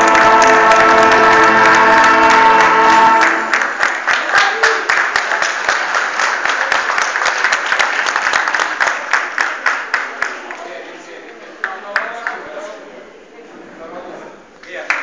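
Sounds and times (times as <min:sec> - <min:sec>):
band holding final chord: 0:00.0 - 0:03.8
audience applause: 0:00.0 - 0:10.6.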